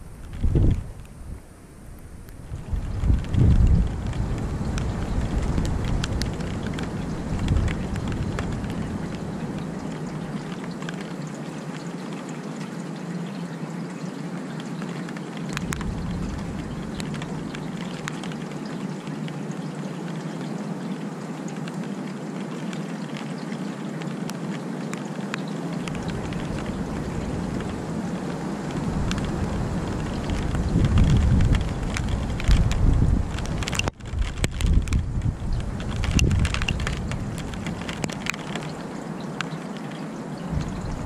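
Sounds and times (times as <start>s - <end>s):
steady rain falling: 0.0s - 41.0s
sharp drip ticks: 2.3s - 41.0s
low rumble: 15.6s - 18.6s, 40.5s - 41.0s.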